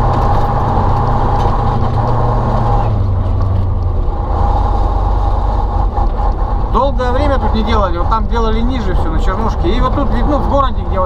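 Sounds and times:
diesel truck engine driving: 0:00.0 - 0:11.0.

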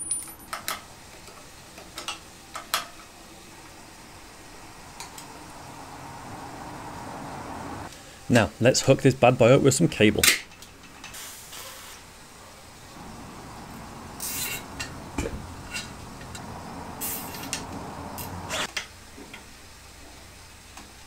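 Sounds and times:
short raspy bursts: 0:13.0 - 0:18.7.

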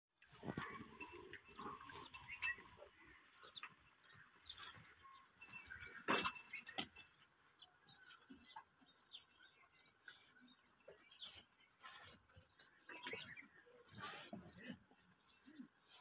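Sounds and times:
knocks and clinks: 0:00.2 - 0:04.8, 0:05.4 - 0:07.2.

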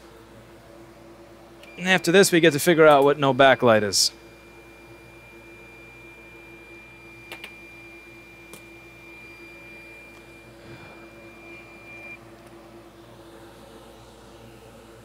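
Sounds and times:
equipment hum: 0:00.0 - 0:15.0
thin high whine: 0:01.6 - 0:12.3.

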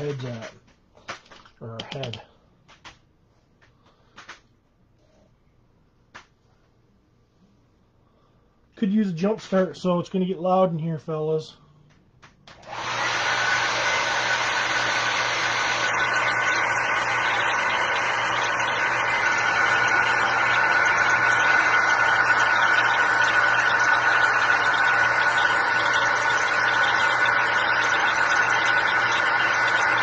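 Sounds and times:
hair dryer running: 0:12.5 - 0:30.0.

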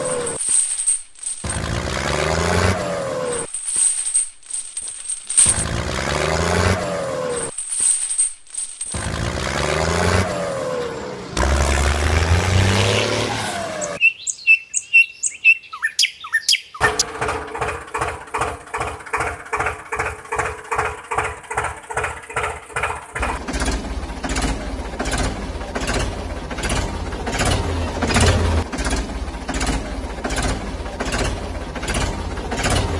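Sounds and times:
tractor engine chugging: 0:16.8 - 0:32.9.

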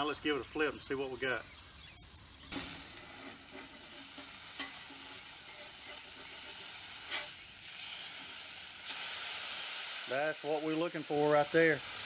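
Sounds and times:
burger patty sizzling on griddle: 0:00.0 - 0:12.0
metal spatula scraping steel: 0:02.4 - 0:08.4.

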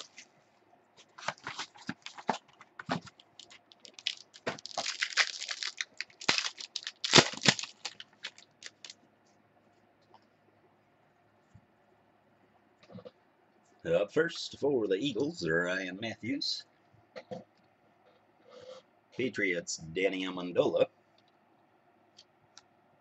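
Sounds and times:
plastic wrapping crinkling and ripping: 0:00.0 - 0:00.3, 0:01.0 - 0:09.0.

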